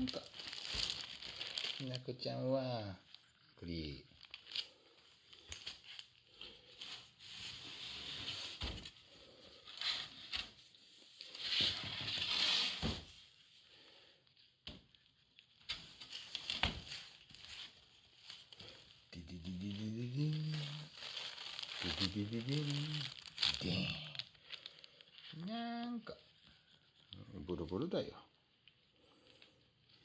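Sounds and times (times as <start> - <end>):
paper and plastic bag rustling: 0.0 - 3.2, 15.8 - 25.3.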